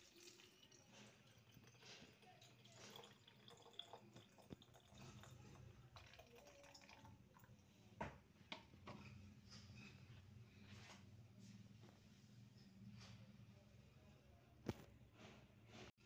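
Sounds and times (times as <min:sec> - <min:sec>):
water trickling into a bottle: 0:00.0 - 0:07.7.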